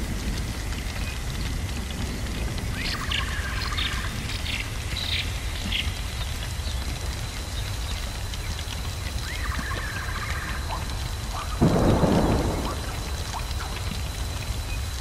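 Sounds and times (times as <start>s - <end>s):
steady rain: 0.0s - 15.0s
thunderclap: 11.6s - 15.0s.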